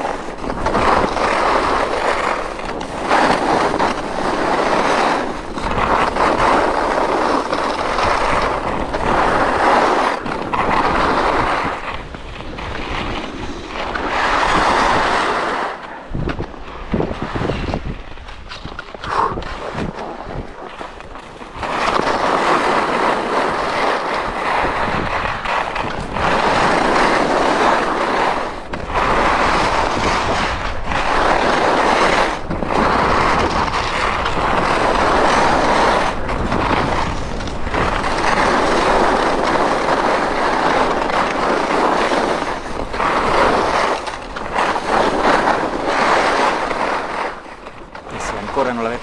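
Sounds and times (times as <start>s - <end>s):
skis scraping over snow: 0.0s - 49.0s.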